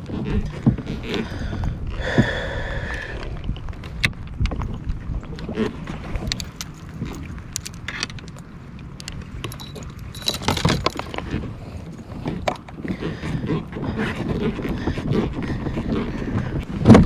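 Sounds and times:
wind rumble on microphone: 0.0s - 17.0s
fishing tackle clinking: 6.3s - 11.4s.

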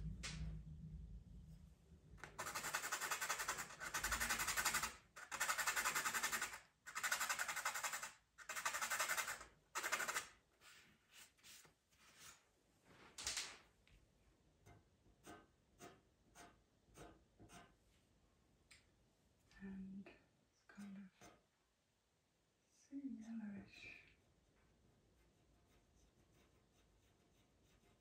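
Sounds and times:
pencil rasping on rough surface: 2.2s - 10.3s, 15.2s - 17.8s, 25.2s - 28.0s.

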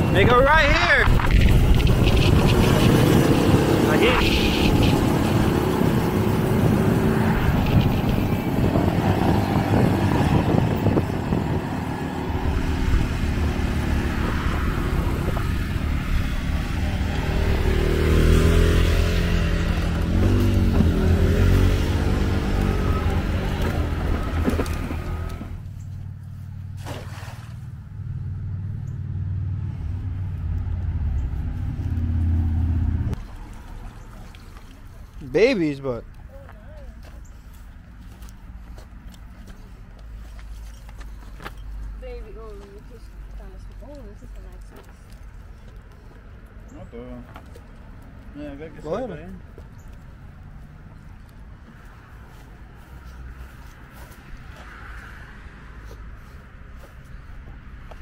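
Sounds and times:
wind noise on microphone: 0.0s - 17.9s.

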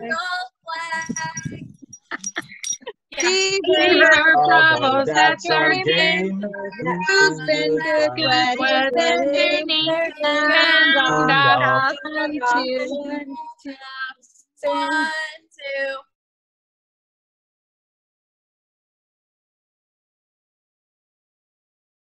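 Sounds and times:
women singing: 0.0s - 16.0s.

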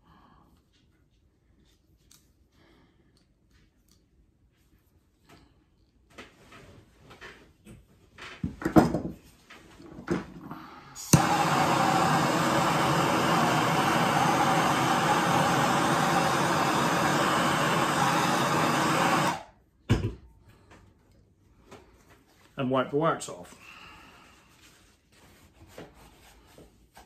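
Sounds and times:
gas torch hissing: 10.8s - 19.6s
gas torch ignition click: 11.0s - 19.5s.

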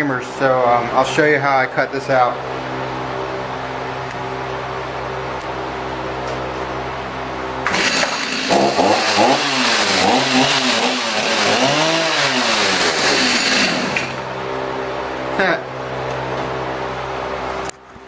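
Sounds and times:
chainsaw engine revving: 7.6s - 14.3s.

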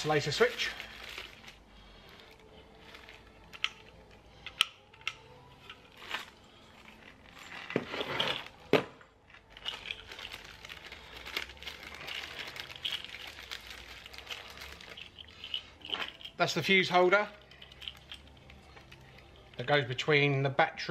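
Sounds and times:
plastic bag crinkling: 0.0s - 4.0s, 5.8s - 8.7s, 9.4s - 16.5s.

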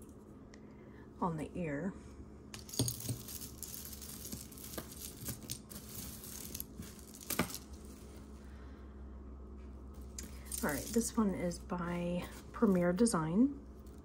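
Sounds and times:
metal jewelry clinking: 2.6s - 8.0s, 10.2s - 11.2s.

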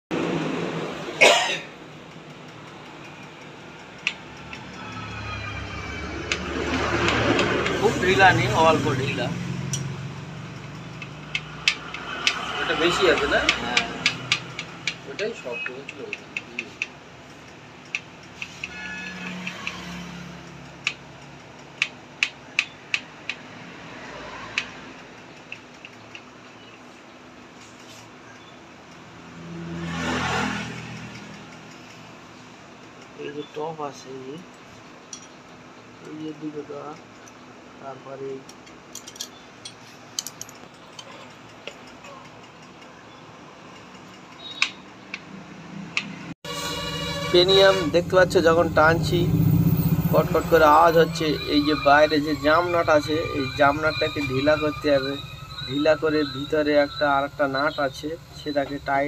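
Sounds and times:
spanner clicking on metal: 1.9s - 5.1s, 9.6s - 23.6s, 24.5s - 27.0s, 30.8s - 32.2s, 34.5s - 37.4s, 38.4s - 43.0s, 43.6s - 45.3s.

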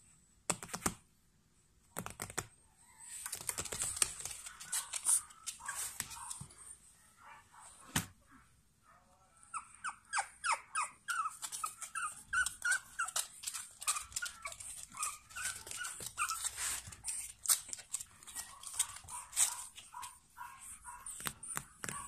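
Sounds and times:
puppies whimpering and yipping: 9.5s - 22.0s.

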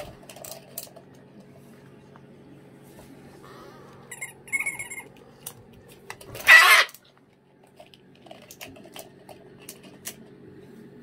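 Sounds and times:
cockatoo screeching: 6.4s - 7.0s.

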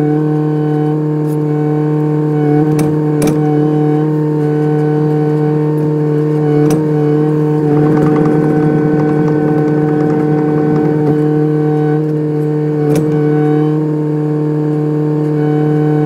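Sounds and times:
excavator engine humming: 6.3s - 13.6s
sharp knocks: 7.6s - 11.4s.

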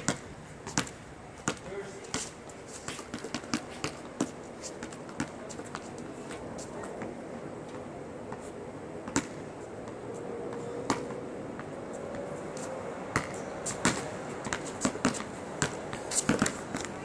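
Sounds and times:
basketball bouncing on asphalt: 0.0s - 6.0s, 9.0s - 12.3s, 13.1s - 17.0s.

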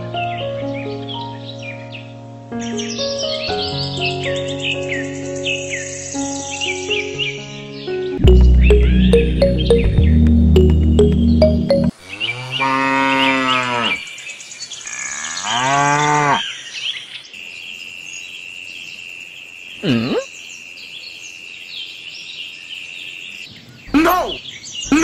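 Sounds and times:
background music: 0.0s - 12.0s
cow mooing: 12.1s - 14.0s, 14.9s - 16.4s.

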